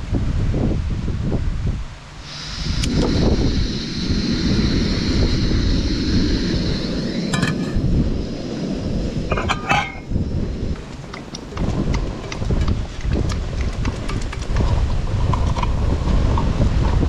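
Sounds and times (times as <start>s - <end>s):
camping burner gas hiss: 0.0s - 17.0s
wind buffeting microphone: 0.0s - 17.0s
metal pot handle clinking: 9.3s - 10.0s.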